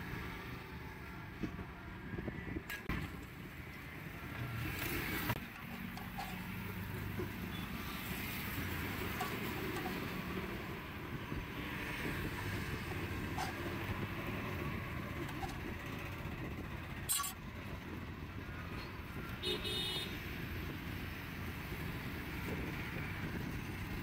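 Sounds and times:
roadside traffic noise: 0.0 - 24.0.

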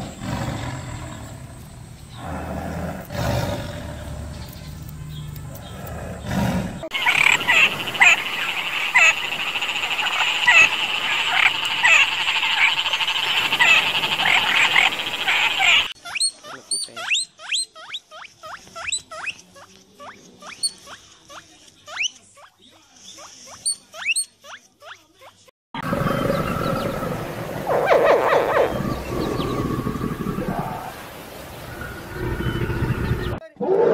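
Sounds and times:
short sharp frog chirps: 6.9 - 16.0
frog chorus trilling: 6.9 - 17.7, 25.8 - 33.4.

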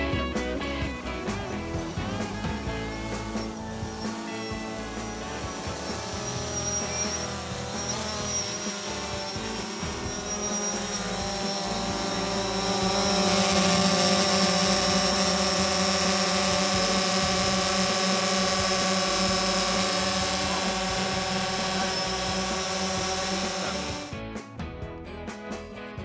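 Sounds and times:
drone propellers buzzing: 0.0 - 24.1.

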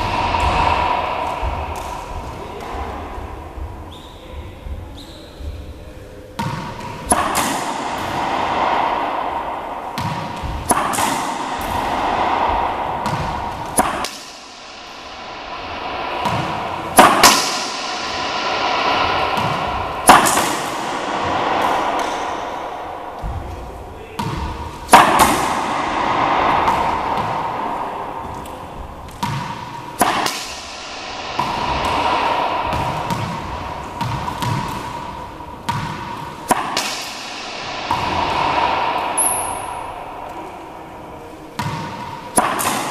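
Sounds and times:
racquet hitting ball: 0.0 - 4.1, 6.4 - 42.9
ball bouncing on hardwood floor: 10.0 - 11.8.

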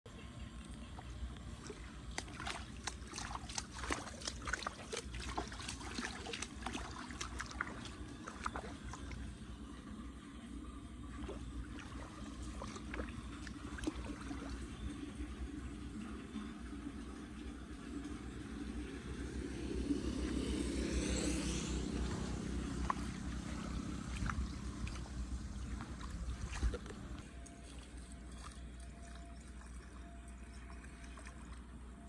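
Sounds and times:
low steady rumble: 0.1 - 32.0
water trickling and splashing in gutter: 0.6 - 9.5, 11.2 - 15.1, 21.8 - 31.9.

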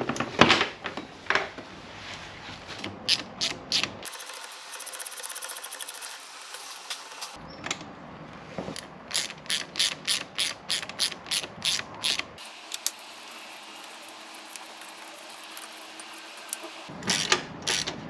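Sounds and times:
socket ratchet clicking: 9.1 - 13.0.

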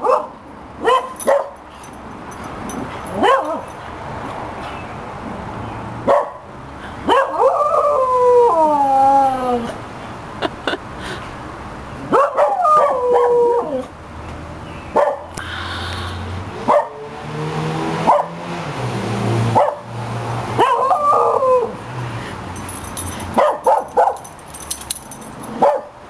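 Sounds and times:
dog barking: 0.0 - 1.6, 3.1 - 3.7, 6.0 - 6.4, 7.1 - 7.6, 12.1 - 13.4, 14.9 - 15.3, 16.7 - 17.1, 18.0 - 18.4, 19.6 - 19.9, 20.6 - 21.4, 23.3 - 24.3, 25.5 - 26.0
dog howling: 20.7 - 21.8.

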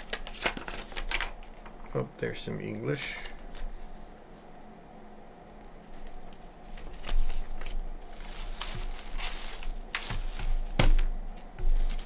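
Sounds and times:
plastic wrapping crinkling: 0.0 - 1.8, 5.8 - 12.0.

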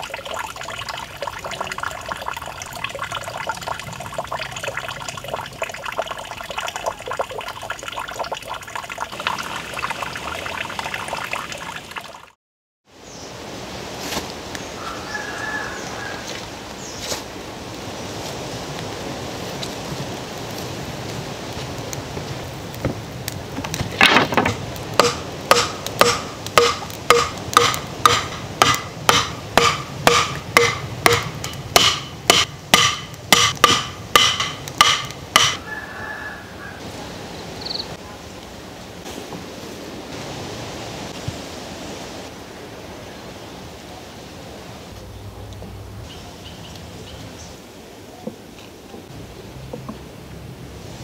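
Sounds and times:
wooden club knocking stakes: 23.6 - 35.6.

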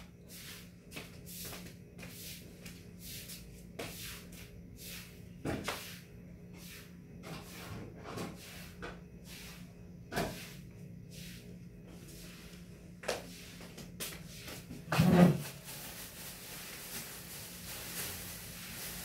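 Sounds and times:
steady low hum: 0.0 - 19.0
light brushing or scraping strokes: 8.4 - 12.6.

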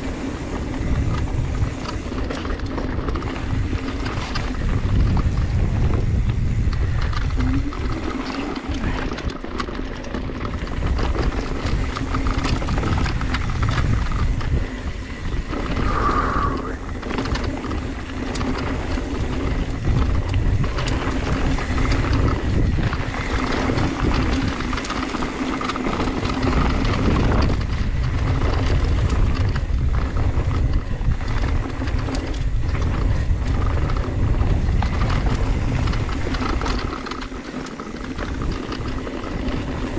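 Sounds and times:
bicycle freehub buzzing: 0.0 - 39.9
bike rattling: 0.0 - 39.9
tyres grinding over dirt: 0.0 - 39.9
wind buffeting microphone: 0.0 - 39.9.

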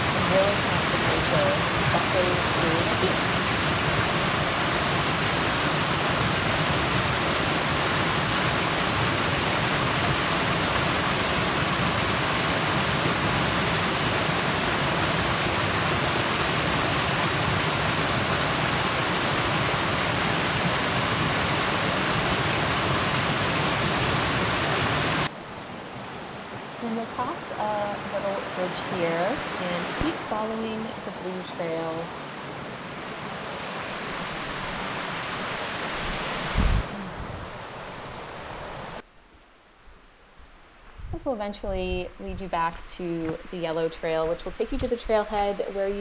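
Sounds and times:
creek cascade pouring into pool: 0.0 - 25.3.

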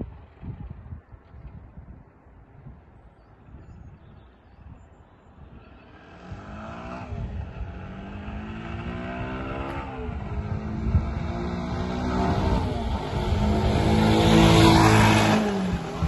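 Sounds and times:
motorcycle engine accelerating: 5.8 - 16.0.

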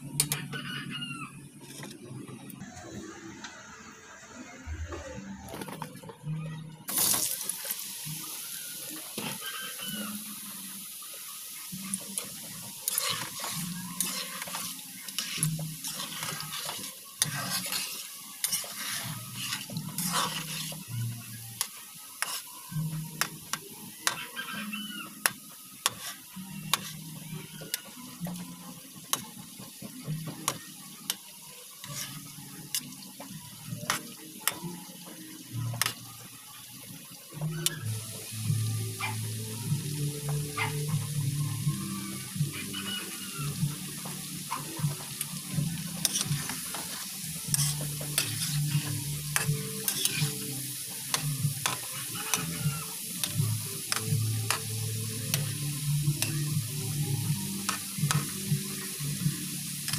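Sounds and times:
frying in hot oil sizzle: 0.0 - 1.9, 6.9 - 59.9
metal utensils scraping pan: 11.9 - 22.6, 24.0 - 28.0, 29.1 - 33.0, 43.9 - 55.6.

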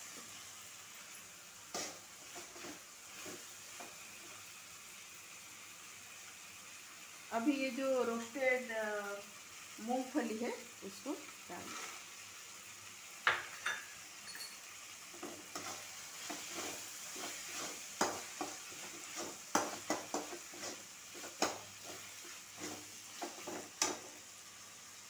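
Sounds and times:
food sizzling in pan: 0.0 - 25.0
spatula scraping metal pan: 15.2 - 24.1
spatula knocking against pan: 19.5 - 20.4.

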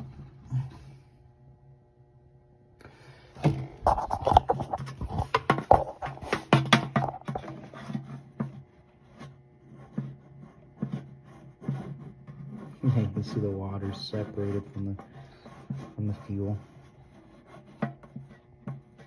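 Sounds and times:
handling noise: 3.4 - 7.6.

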